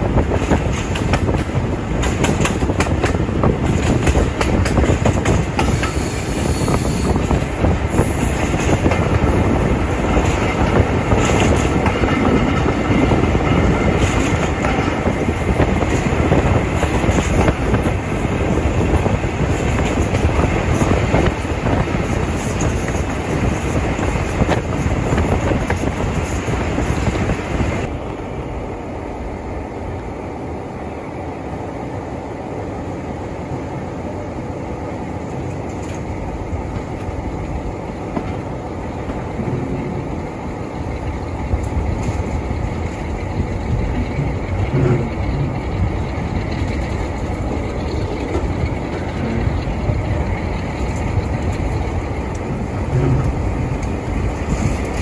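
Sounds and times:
train knocks: 0.0s - 27.9s, 35.3s - 55.0s
diesel train rumbling: 0.0s - 55.0s
train hiss: 5.5s - 9.8s.

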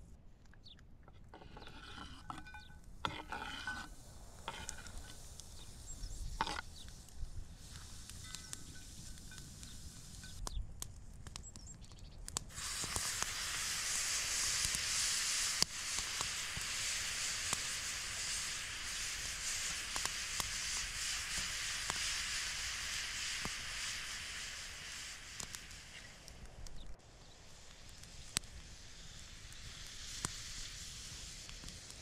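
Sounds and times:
vegetables sizzling in a frying pan: 12.5s - 32.0s.

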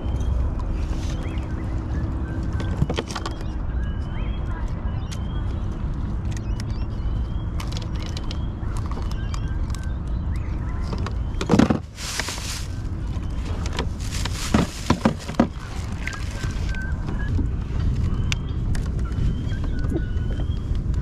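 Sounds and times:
wind rumble on microphone: 0.0s - 21.0s
loud rustling: 11.5s - 16.7s.

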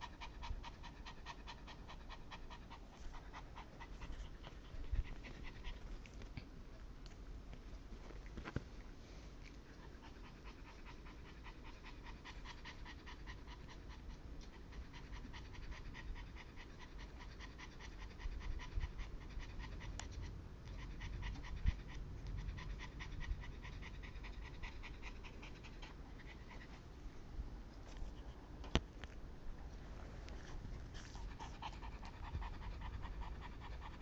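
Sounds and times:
dog panting rapidly: 0.0s - 6.1s, 9.7s - 27.0s, 30.3s - 34.0s.

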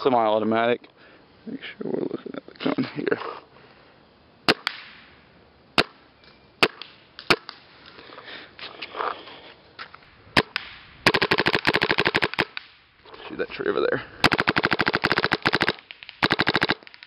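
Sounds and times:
paintball marker firing: 4.5s - 5.0s, 6.6s - 7.6s, 10.4s - 12.8s, 14.2s - 17.0s.

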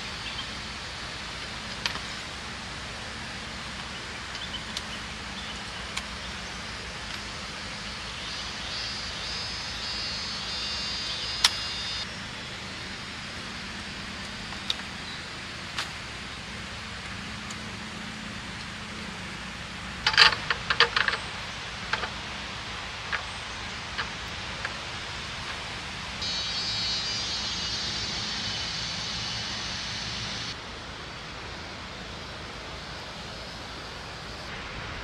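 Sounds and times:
river rushing: 0.0s - 35.0s
high even buzz: 6.2s - 14.2s, 21.4s - 30.6s.

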